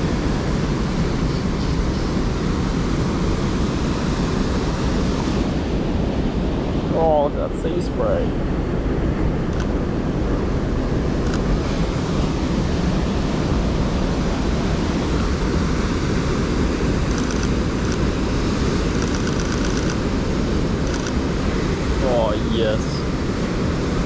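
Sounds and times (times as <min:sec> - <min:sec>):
rapid camera shutter clicks: 0:17.1 - 0:18.1, 0:18.9 - 0:20.0, 0:20.8 - 0:21.2.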